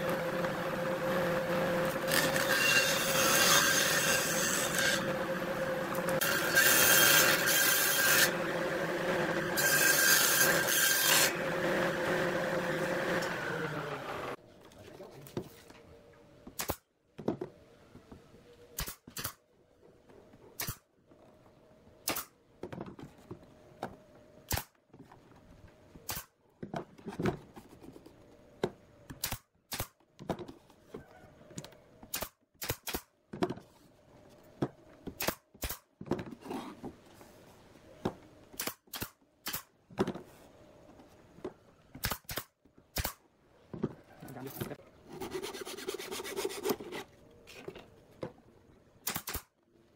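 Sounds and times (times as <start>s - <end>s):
pneumatic nailer firing: 22.0s - 22.3s, 24.5s - 24.8s, 26.1s - 26.3s, 29.2s - 30.0s, 32.1s - 33.1s, 35.2s - 35.9s, 38.6s - 39.7s, 42.0s - 43.2s, 49.0s - 49.5s.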